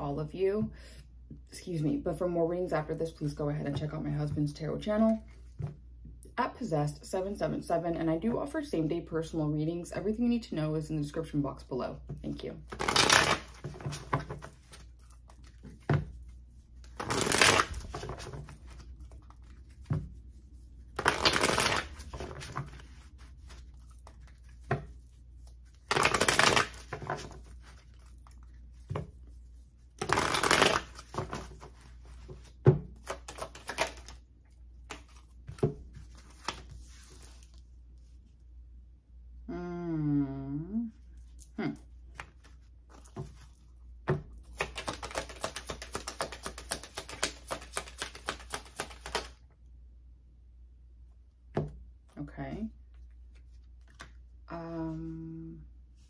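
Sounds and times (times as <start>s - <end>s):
cards being shuffled: 12.7s - 29.3s, 29.9s - 34.2s, 34.8s - 37.6s, 44.4s - 49.4s, 53.3s - 54.2s.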